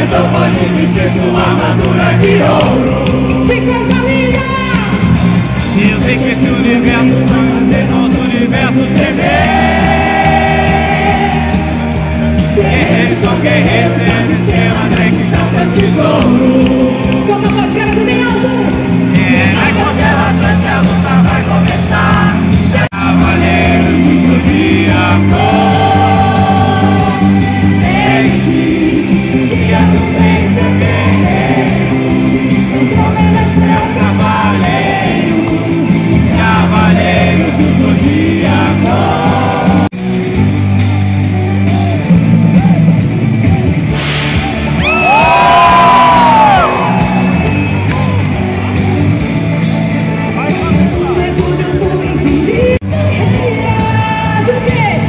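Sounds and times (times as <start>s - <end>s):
live band and singer: 0.0s - 55.0s
crowd shouting: 9.0s - 15.0s, 44.4s - 48.6s.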